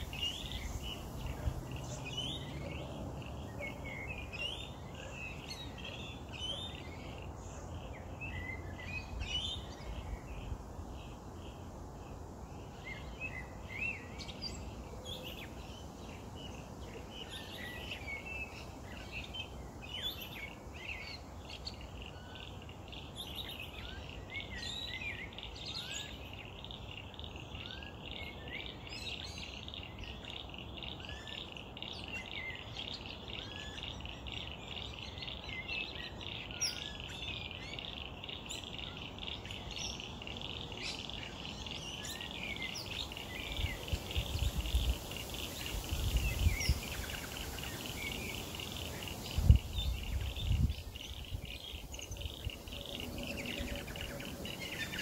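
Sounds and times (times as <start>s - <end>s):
birds chirping and whistling: 36.6s - 55.0s.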